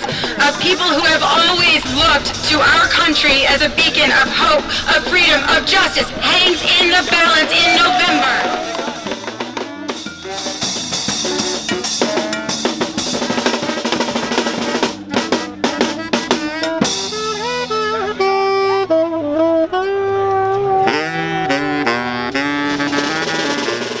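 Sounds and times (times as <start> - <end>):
busy drum beat with chords: 0.0 - 18.4.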